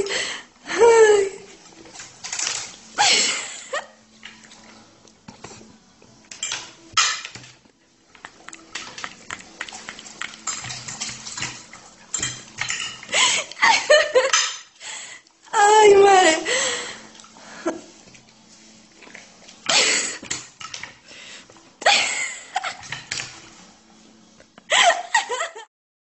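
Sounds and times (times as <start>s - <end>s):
cutlery clinking on a plate: 6.3s - 7.6s, 8.2s - 13.1s, 14.2s - 14.7s
person speaking: 15.5s - 16.6s.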